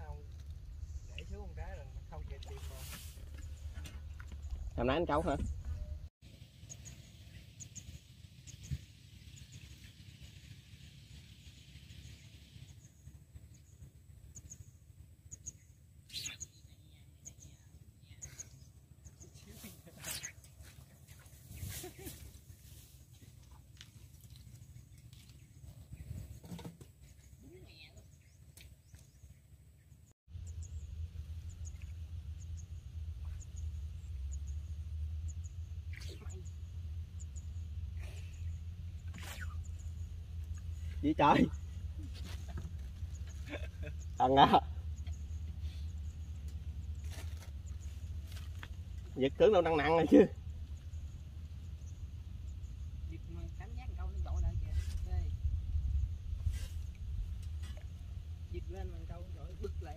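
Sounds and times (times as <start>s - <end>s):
steady low rumble: 0.0s - 26.3s, 29.1s - 59.9s
faint bird chirps: 5.6s - 22.8s, 27.0s - 41.1s
low rumble: 30.3s - 49.2s, 50.3s - 59.9s.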